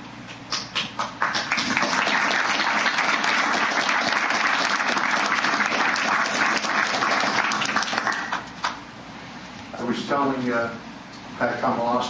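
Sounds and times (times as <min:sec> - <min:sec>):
audience applause: 0:00.8 - 0:08.8.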